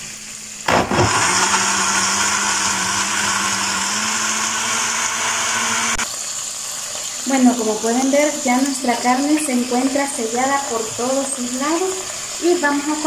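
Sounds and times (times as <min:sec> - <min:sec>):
blender motor running: 0:00.7 - 0:06.1.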